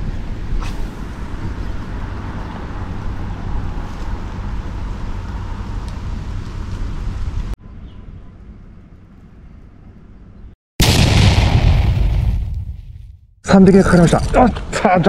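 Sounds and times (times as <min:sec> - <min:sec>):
outdoor rumble and hiss: 0:00.0 - 0:10.6.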